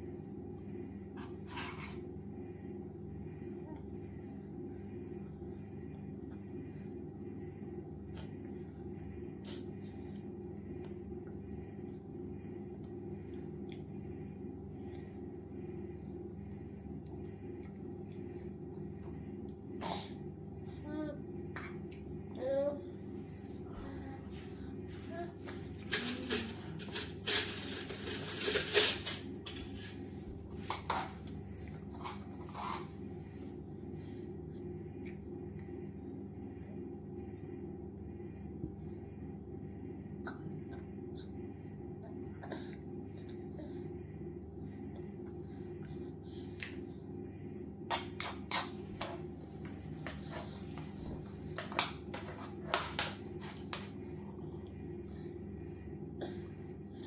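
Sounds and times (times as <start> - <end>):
steady low hum: 0.0 - 57.0
plastic spoon scraping bowl: 47.9 - 54.0.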